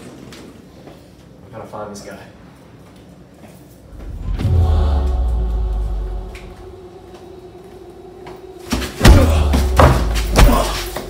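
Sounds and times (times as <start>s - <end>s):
low hum: 3.8s - 11.0s.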